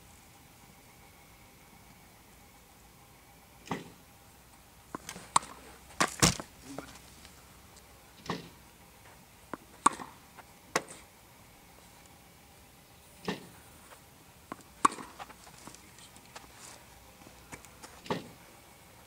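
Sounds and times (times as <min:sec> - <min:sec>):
tennis ball bouncing: 0:04.9 - 0:06.9, 0:09.5 - 0:11.0, 0:14.5 - 0:16.5
tennis racket hitting ball: 0:04.9 - 0:06.9, 0:09.6 - 0:11.0, 0:14.5 - 0:16.4.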